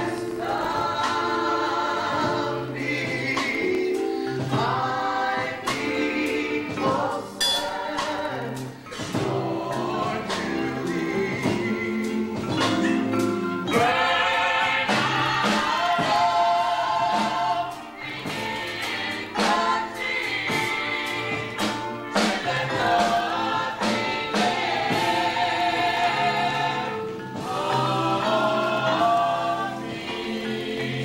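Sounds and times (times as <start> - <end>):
gospel choir singing: 0.0 - 31.0
sharp beats: 7.4 - 8.2.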